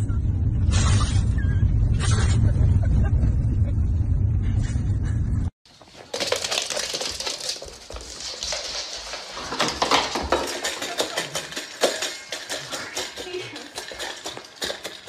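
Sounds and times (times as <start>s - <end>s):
dog eating from metal bowl: 5.7s - 15.0s
metal bowl clinking and scraping: 5.9s - 15.0s.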